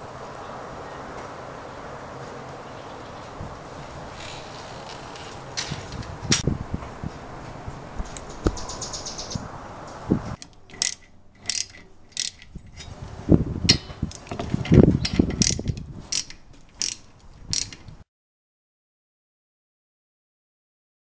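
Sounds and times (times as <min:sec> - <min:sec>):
ratchet wrench clicking: 0:10.4 - 0:13.0, 0:15.0 - 0:17.9.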